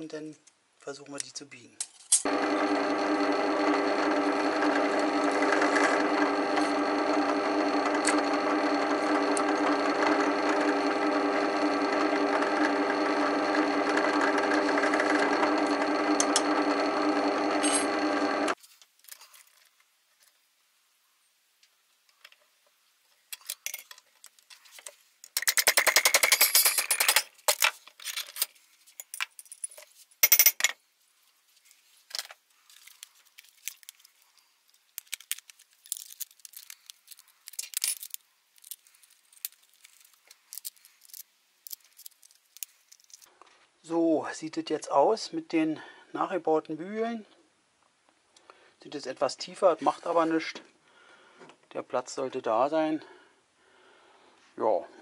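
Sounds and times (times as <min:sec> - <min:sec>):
metal-working noise: 0:02.1 - 0:18.6
drill press motor running: 0:02.2 - 0:18.6.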